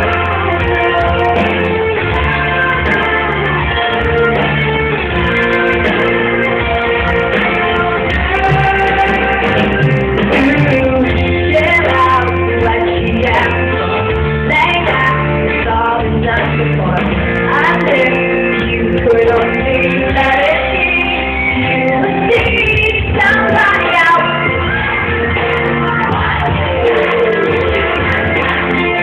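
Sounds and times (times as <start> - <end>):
live pop-rock band playing: 0.0 - 29.0
woman singing: 0.0 - 29.0.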